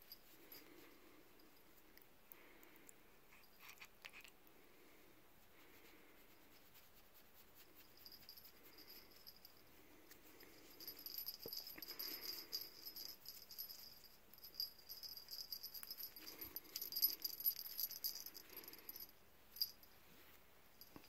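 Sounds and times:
cat's collar jingling: 6.6s - 9.6s, 10.4s - 19.9s.

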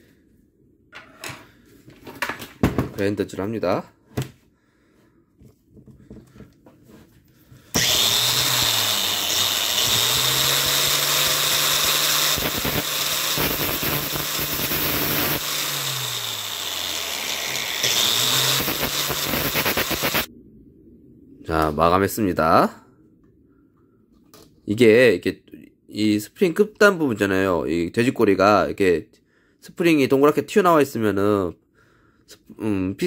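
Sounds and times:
angle grinder grinding steel: 7.7s - 20.3s.

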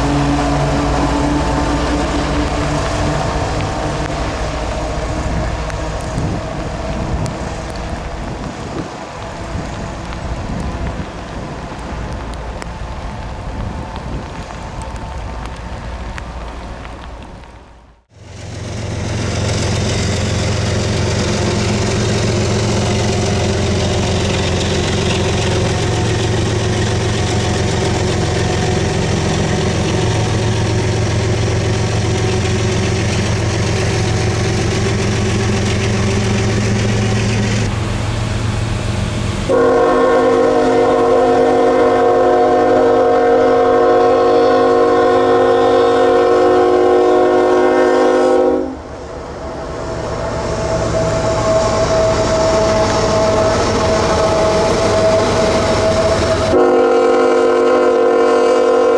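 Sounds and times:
diesel locomotive engine rumble: 0.0s - 58.9s
locomotive air horn: 39.5s - 48.8s, 50.5s - 58.9s.

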